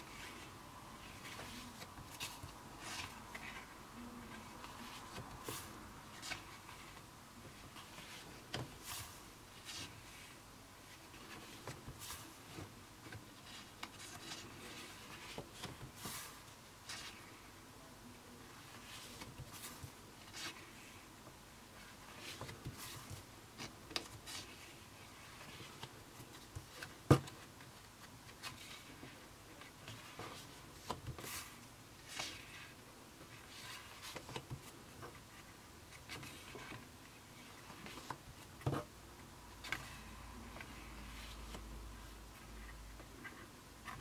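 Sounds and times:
paper pages turning: 22.1 - 34.7.

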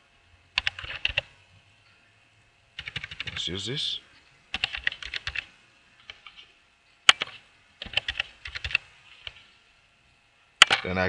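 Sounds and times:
computer keyboard typing: 0.6 - 1.3, 2.8 - 3.4, 4.5 - 6.4, 7.1 - 9.4.

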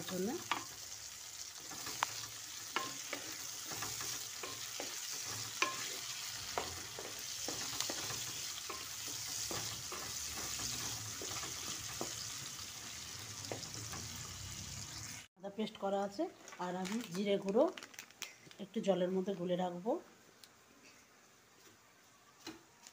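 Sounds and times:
onions sizzling in hot oil: 0.0 - 15.3
spatula scraping a pan: 1.6 - 12.7.

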